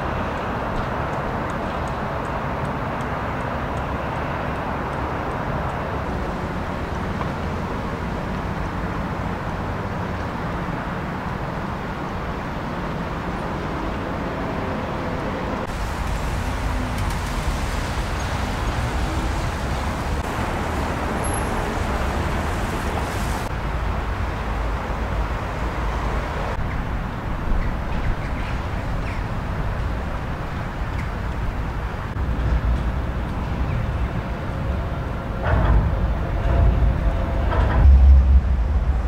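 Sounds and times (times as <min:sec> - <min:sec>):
city traffic rumble: 0:00.0 - 0:39.0.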